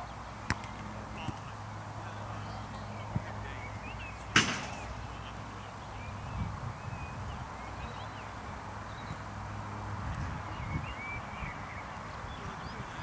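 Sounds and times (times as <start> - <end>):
football being kicked: 0.4 - 1.5.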